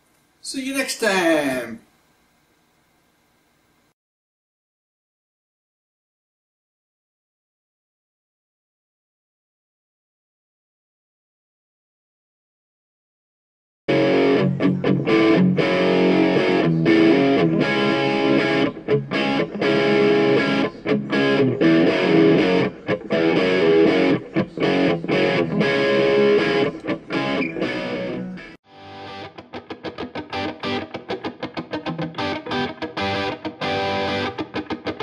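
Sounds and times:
distorted electric guitar music: 13.9s - 35.0s.

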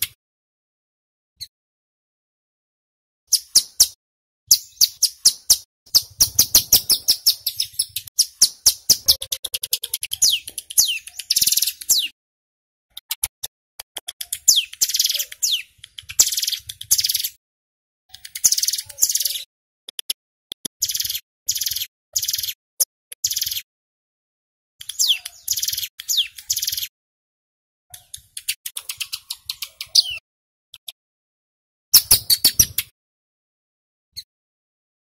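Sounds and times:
bird singing rapid chips: 3.3s - 12.2s, 14.0s - 17.4s, 18.1s - 20.2s, 20.8s - 23.7s, 24.8s - 26.9s, 27.9s - 30.2s, 31.9s - 32.9s.

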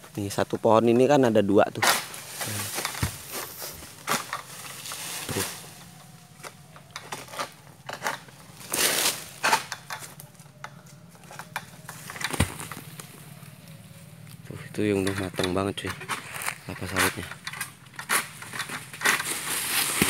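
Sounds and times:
sickle chopping palm fronds: 1.0s - 13.4s, 14.8s - 20.0s
rustle of fronds: 1.6s - 10.5s, 11.1s - 20.0s.

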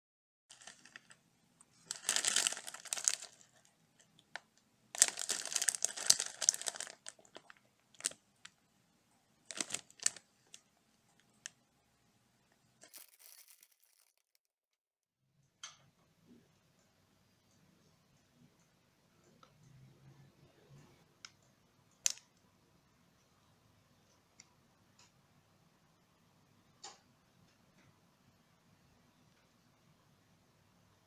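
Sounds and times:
plastic snack bag crinkling: 0.5s - 8.6s, 9.5s - 11.6s, 12.8s - 14.4s.

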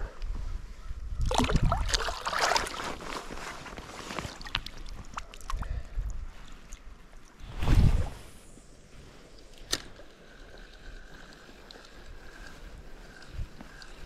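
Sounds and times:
fish splashing in water: 1.3s - 2.9s.

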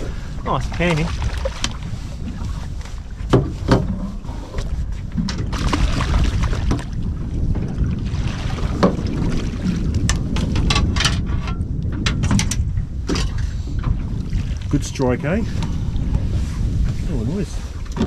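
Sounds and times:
wind rumbling on microphone: 0.0s - 18.0s
sharp knocks on boat: 3.2s - 4.0s, 8.7s - 9.1s.

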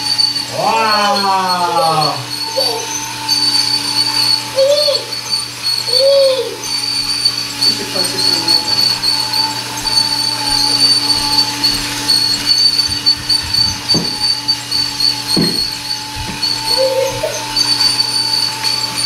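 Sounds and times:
toy train motor whine: 0.0s - 19.0s
short knocks: 12.9s - 14.3s.

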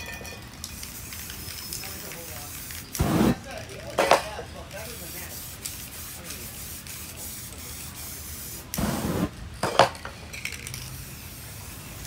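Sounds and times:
spray paint can hissing: 0.7s - 3.6s, 4.7s - 9.4s, 10.5s - 12.0s.

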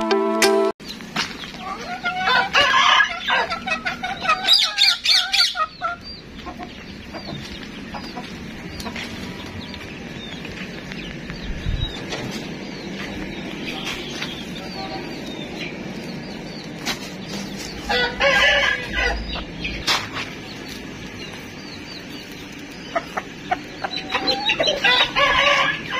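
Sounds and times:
farmyard background: 0.0s - 25.9s
chickens clucking and squawking: 0.9s - 25.9s
rooster crowing: 1.9s - 5.6s, 17.8s - 19.5s, 23.8s - 25.9s.

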